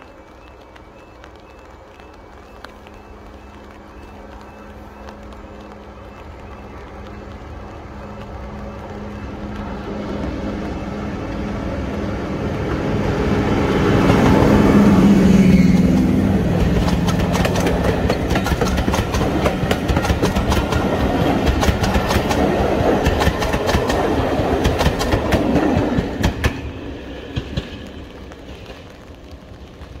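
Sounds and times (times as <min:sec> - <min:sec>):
diesel locomotive engine: 0:00.0 - 0:30.0
train wheels clicking on rail joints: 0:13.6 - 0:29.9.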